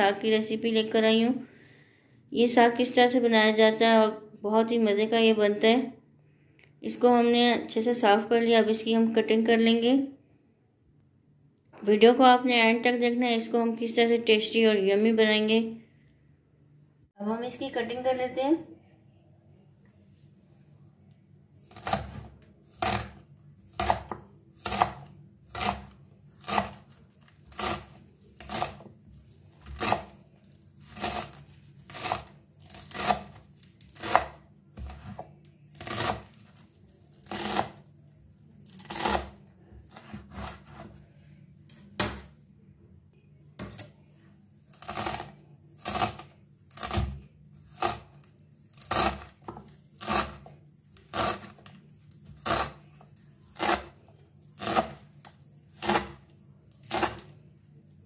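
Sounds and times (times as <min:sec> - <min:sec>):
knife chopping greens on wooden board: 0:21.7 - 0:28.9, 0:29.5 - 0:30.2, 0:30.8 - 0:36.5, 0:37.2 - 0:37.8, 0:44.8 - 0:48.1, 0:48.8 - 0:51.6, 0:53.6 - 0:55.1, 0:55.8 - 0:56.2.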